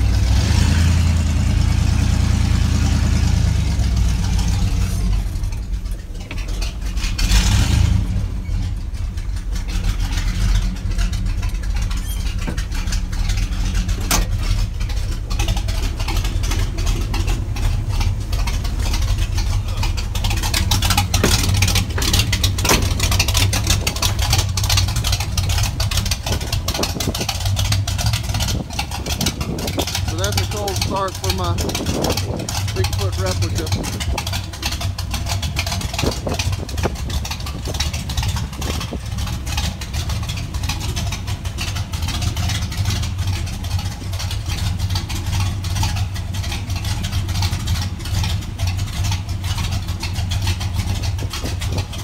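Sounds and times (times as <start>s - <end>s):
truck engine idling: 0.0s - 52.0s.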